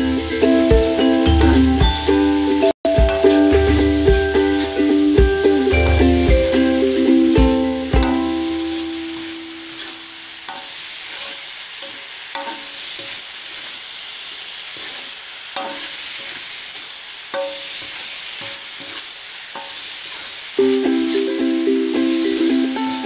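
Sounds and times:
food sizzling in hot oil: 0.0 - 23.0
metal spatula scraping a wok: 8.0 - 13.8, 14.6 - 23.0.

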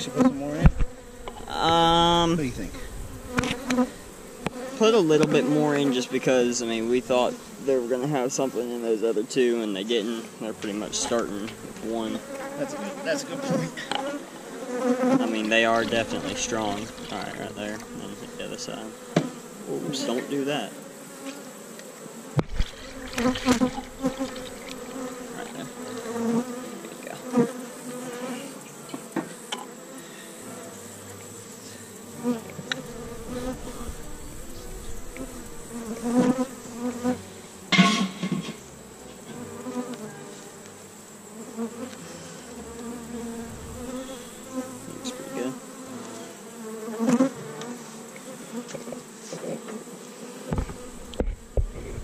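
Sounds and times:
honey bees buzzing: 0.0 - 52.0
hive equipment knocks: 22.4 - 25.1, 37.7 - 38.6, 50.5 - 51.9.

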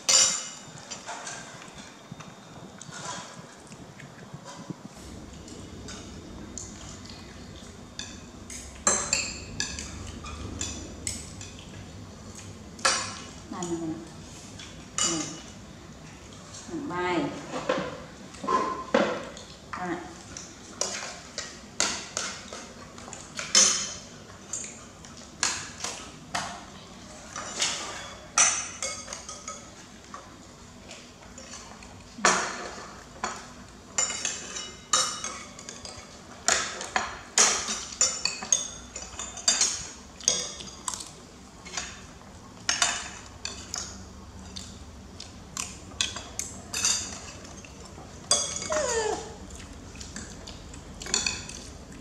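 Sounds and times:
spoons clinking on ceramic plates: 27.3 - 29.8, 32.4 - 40.9, 46.0 - 49.0, 51.0 - 51.7.

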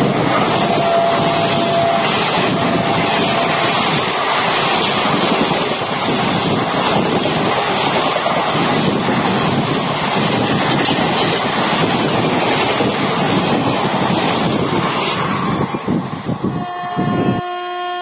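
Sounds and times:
train rushing past: 0.0 - 17.8.

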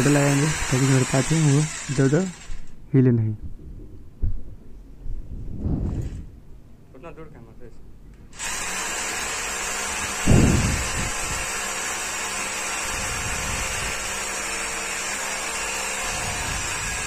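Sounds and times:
rotary hammer drill boring concrete: 0.0 - 2.8, 8.3 - 17.0
low thump: 4.2 - 4.5.

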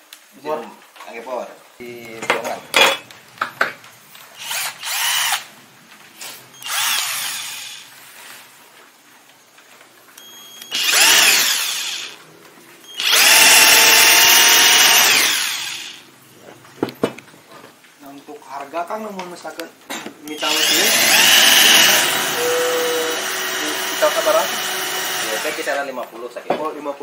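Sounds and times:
electric drill boring into wood: 4.4 - 5.5, 6.6 - 8.0, 10.6 - 12.2, 12.9 - 16.0, 20.3 - 25.9.

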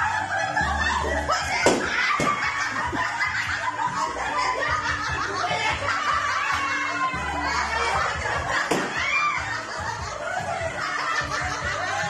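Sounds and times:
people laughing and talking: 0.0 - 12.0
sharp smacks: 8.7 - 8.9.

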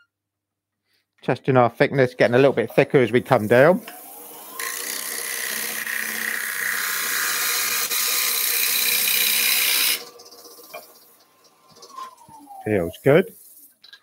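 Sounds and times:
tool hissing against spinning wood: 2.9 - 13.8
wood lathe motor whine: 3.3 - 13.5.

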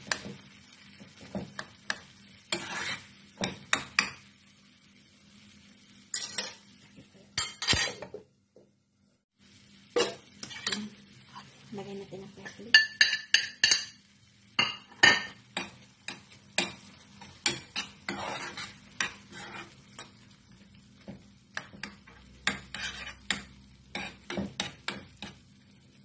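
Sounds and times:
metal spoon clinking and scraping pan: 0.0 - 0.4, 1.2 - 4.3, 6.1 - 6.7, 7.4 - 8.1, 10.0 - 11.5, 12.4 - 20.3, 21.5 - 25.4.

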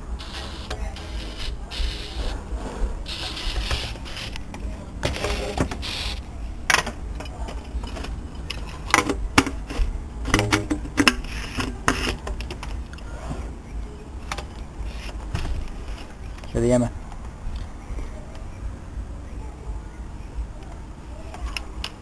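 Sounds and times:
plastic pipe clicking and scraping: 6.7 - 13.1.

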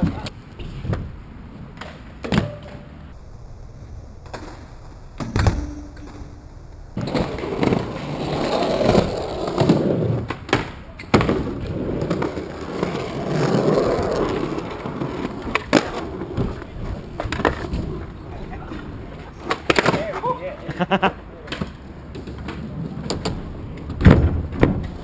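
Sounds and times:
skateboard clacks: 7.0 - 20.3, 21.4 - 25.0
skateboard wheels on rough concrete: 7.0 - 25.0.

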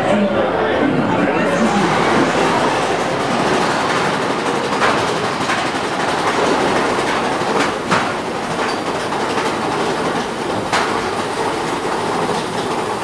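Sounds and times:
roller coaster rattling on track: 3.2 - 13.0.

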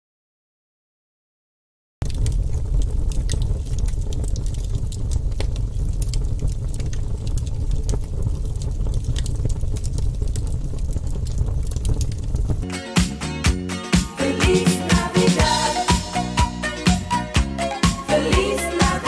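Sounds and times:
low rumble: 2.0 - 12.7
sparkler fizzing and crackling: 2.1 - 19.0.

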